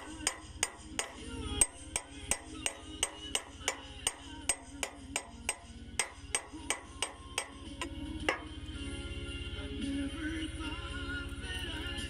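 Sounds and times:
hammer ringing on steel: 0.0s - 7.7s
low steady throb: 0.0s - 12.0s.

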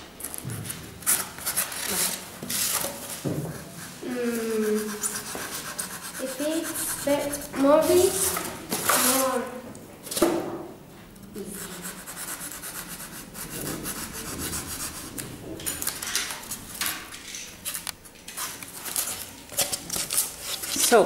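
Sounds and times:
polystyrene foam being scraped: 1.0s - 3.2s.

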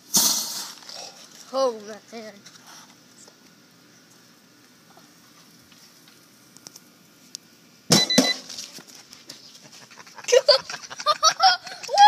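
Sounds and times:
hissing rush of flame: 0.0s - 1.4s.

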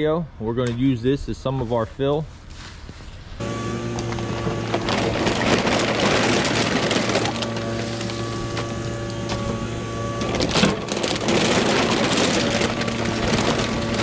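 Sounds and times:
crackling and scraping of debris: 2.5s - 14.0s
excavator diesel engine: 3.4s - 14.0s
hydraulic whine: 3.4s - 14.0s.

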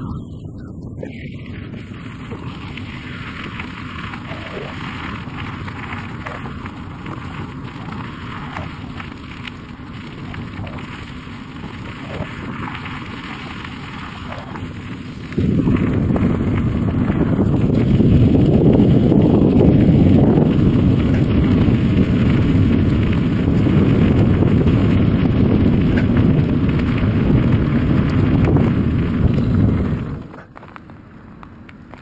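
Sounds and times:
wind buffeting microphone: 0.0s - 30.4s
tyres rolling on gravel: 0.0s - 32.0s.

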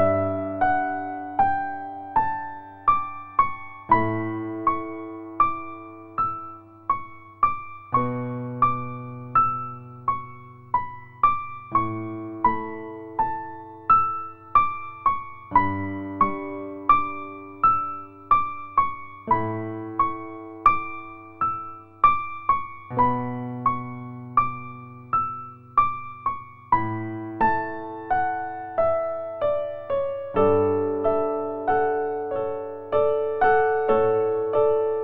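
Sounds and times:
slow keyboard melody: 0.0s - 35.0s.

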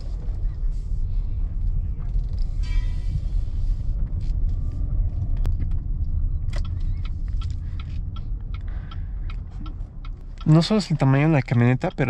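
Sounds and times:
road and engine rumble in car cabin: 0.0s - 12.0s
light ticks: 6.5s - 12.0s.

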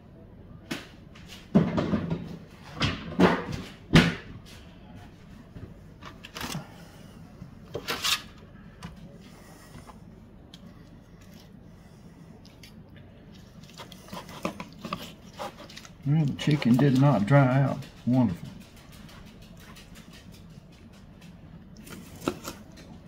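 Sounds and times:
kitchenware knocks and clatters: 1.5s - 4.3s.

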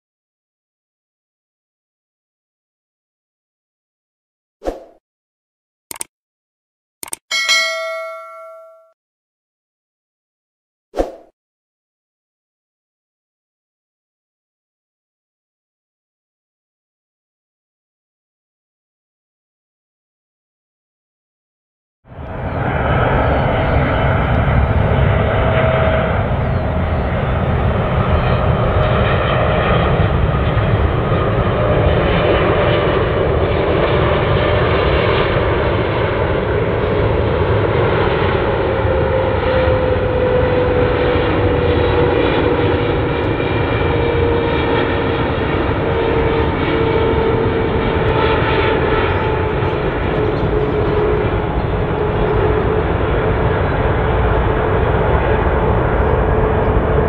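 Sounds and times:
jet engine rumble and whine: 22.1s - 57.0s.

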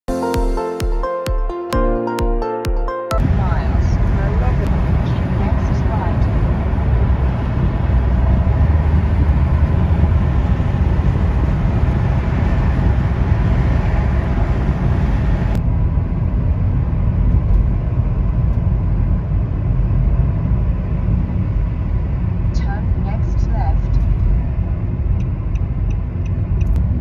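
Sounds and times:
car road rumble: 3.2s - 27.0s.

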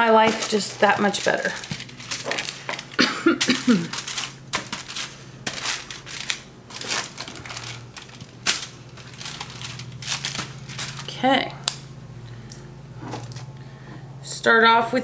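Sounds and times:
aluminium foil crinkling: 0.0s - 11.9s.

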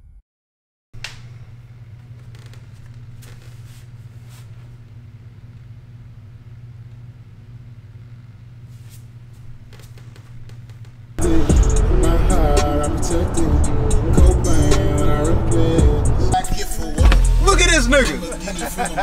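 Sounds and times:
low room tone hum: 1.0s - 19.0s.

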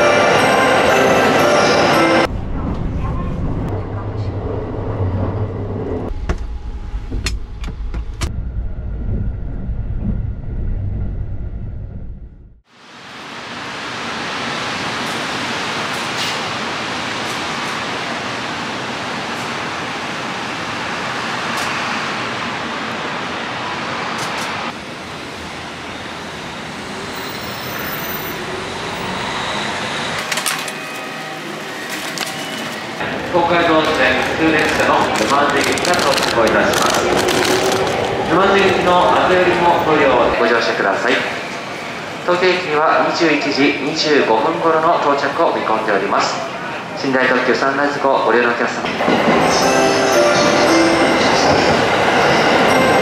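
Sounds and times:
train rumble: 0.0s - 12.6s, 13.9s - 53.0s
road traffic hum: 31.3s - 40.3s.

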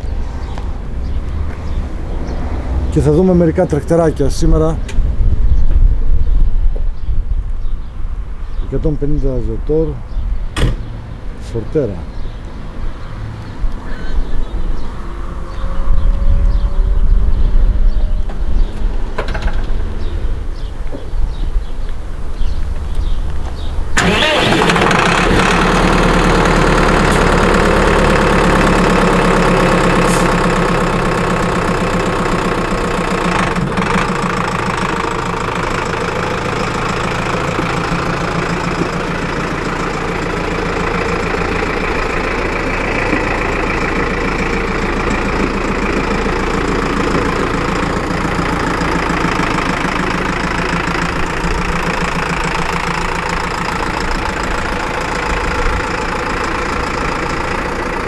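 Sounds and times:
tractor diesel engine idling: 17.4s - 58.0s.

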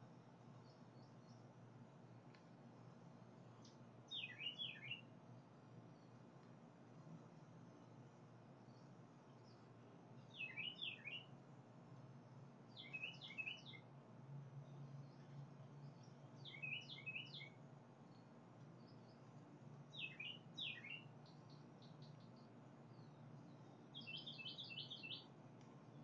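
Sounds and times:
faint steady low hum: 0.0s - 26.0s
songbird singing: 0.0s - 26.0s.

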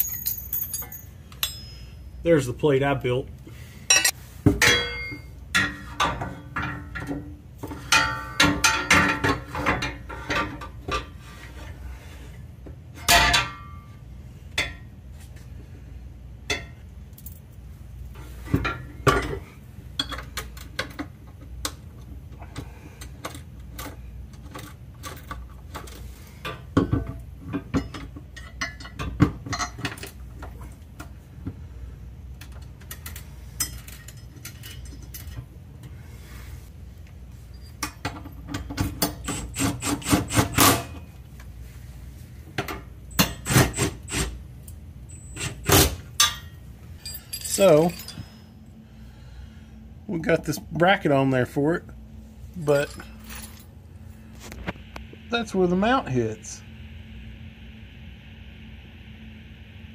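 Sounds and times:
metal brackets clinking: 0.0s - 1.9s, 46.2s - 48.4s
steady low hum: 0.0s - 59.9s.

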